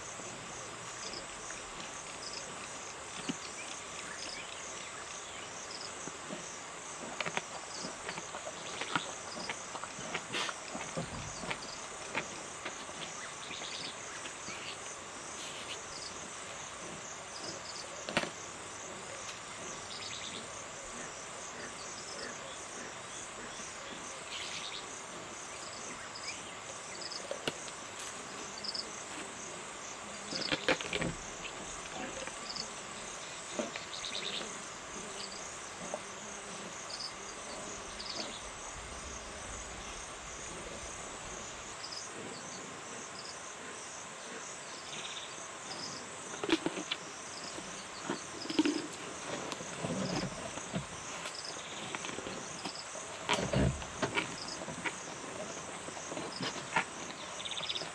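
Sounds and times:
crickets and insects chirring: 0.0s - 57.9s
animal chewing bones: 30.3s - 32.4s.

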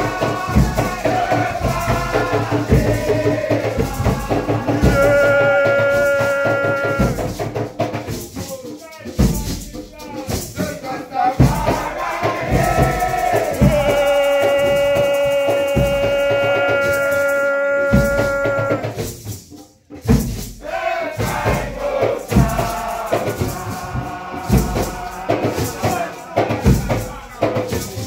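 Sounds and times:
group chanting: 0.0s - 7.5s, 10.6s - 19.0s, 20.6s - 28.0s
hand drumming: 0.0s - 8.3s, 11.4s - 19.5s, 21.2s - 28.0s
shakers: 0.0s - 28.0s.

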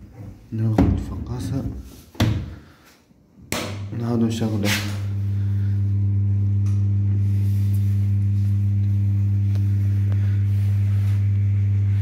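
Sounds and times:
fan motor humming: 3.6s - 12.0s.

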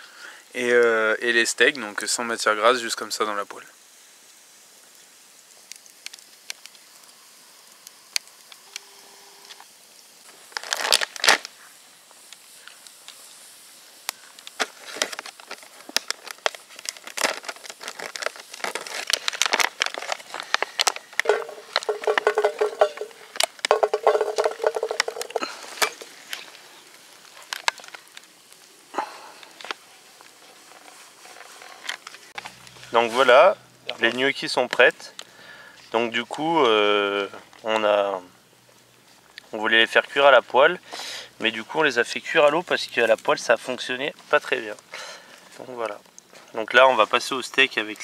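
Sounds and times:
campfire crackling: 0.0s - 48.0s
plastic packaging crinkling and tearing: 10.2s - 13.2s, 14.0s - 28.8s, 29.4s - 33.3s.

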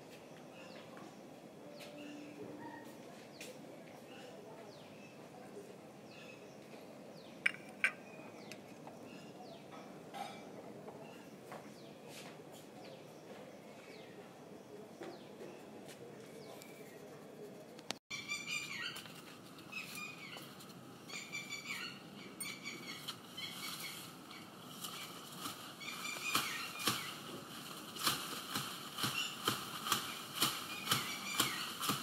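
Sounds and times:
birds chirping: 0.0s - 32.0s
bamboo leaves rustling: 18.3s - 32.0s.

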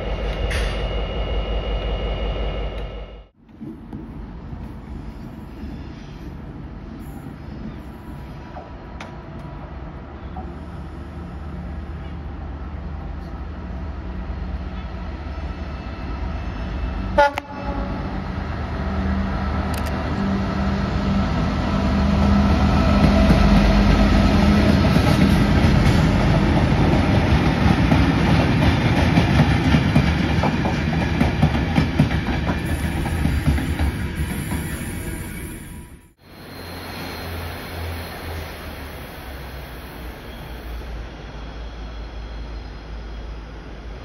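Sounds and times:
locomotive drone: 0.0s - 44.0s
short sharp train horn toot: 17.1s - 18.2s.

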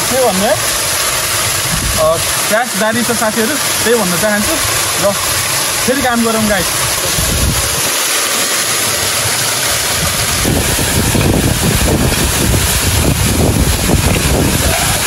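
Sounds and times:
low rumbling buffeting: 0.0s - 15.0s
waterfall rushing: 0.0s - 15.0s.

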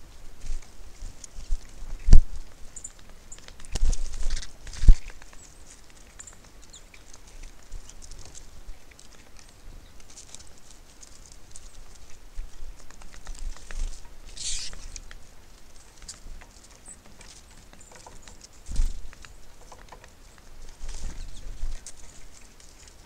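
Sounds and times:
rustle: 0.0s - 23.0s
beaks pecking at feeder: 2.8s - 23.0s.

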